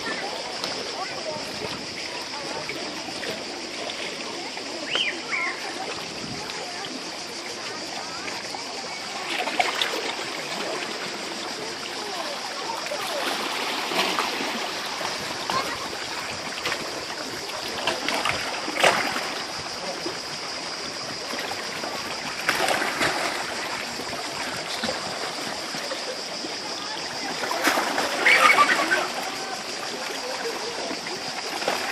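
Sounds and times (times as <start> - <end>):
steady high-pitched hiss: 0.0 - 31.9
water lapping on rocky shore: 0.0 - 31.9
sharp water splashes: 8.2 - 31.9.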